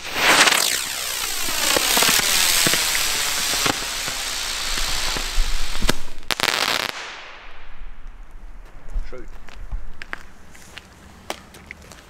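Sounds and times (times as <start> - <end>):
firework sparks hissing: 0.0 - 8.0
firework cracks: 0.0 - 9.2.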